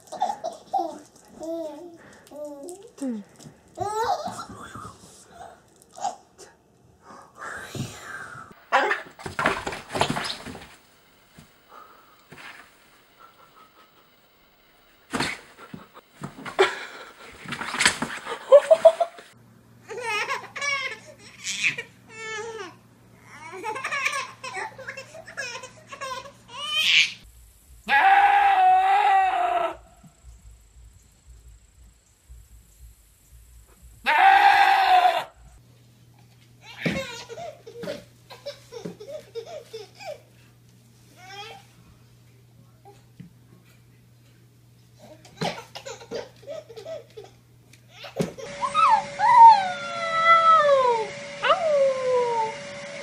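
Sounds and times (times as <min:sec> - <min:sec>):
baby laughing: 0:00.0 - 0:01.9, 0:19.9 - 0:22.0, 0:23.4 - 0:27.2, 0:36.6 - 0:40.3, 0:45.2 - 0:48.6
low steady hum: 0:00.0 - 0:27.9, 0:28.7 - 0:34.1
dog thumping into fabric bin: 0:09.1 - 0:10.8
loud laughter: 0:15.4 - 0:17.5, 0:18.1 - 0:19.4
goat bleating: 0:34.0 - 0:35.3.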